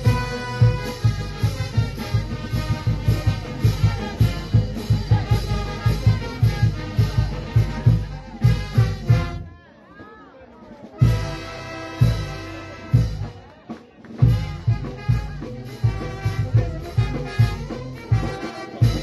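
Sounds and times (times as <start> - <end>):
bass drum beat: 0.0 - 9.5, 11.0 - 13.4, 14.2 - 19.0
trumpets and trombones: 0.0 - 9.6, 11.0 - 13.4, 14.2 - 19.0.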